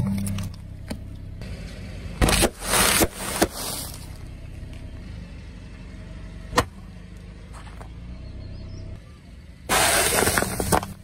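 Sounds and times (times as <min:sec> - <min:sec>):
car engine humming: 0:00.0 - 0:11.0
tyre crushing snack bags: 0:02.2 - 0:04.0.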